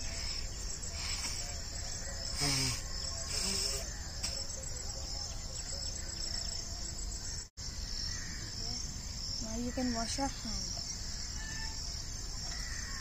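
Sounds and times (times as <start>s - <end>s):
insects chirring: 0.0s - 13.0s
person blowing air through nose: 2.4s - 3.8s.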